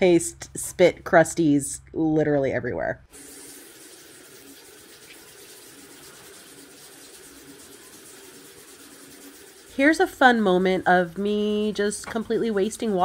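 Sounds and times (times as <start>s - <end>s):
faucet running into sink: 3.1s - 10.0s.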